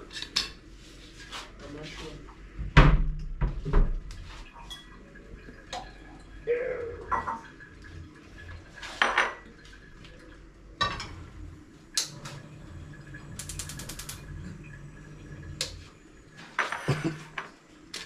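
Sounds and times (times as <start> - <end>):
spark igniter clicking: 13.4 - 14.2.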